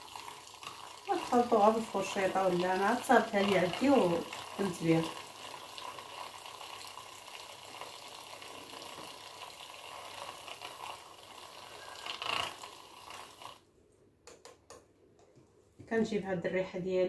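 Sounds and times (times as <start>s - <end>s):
whisk scraping cup: 0.0s - 7.0s, 7.7s - 13.6s
battery whisk running in oil: 0.0s - 13.6s.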